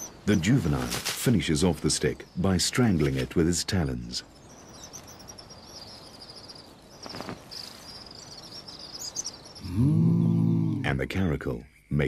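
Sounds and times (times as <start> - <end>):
insects trilling: 0.0 - 12.0
brief rustle: 0.8 - 1.3, 7.0 - 7.8.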